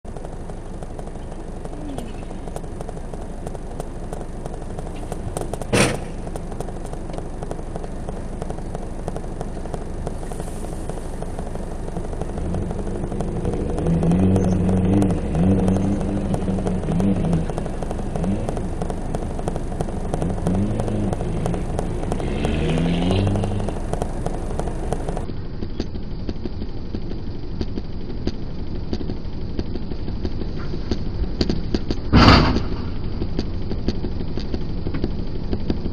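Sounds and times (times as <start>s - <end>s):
steady background noise: 0.0s - 35.9s
rally car engine revving: 0.2s - 25.3s
sharp knock: 32.1s - 33.0s.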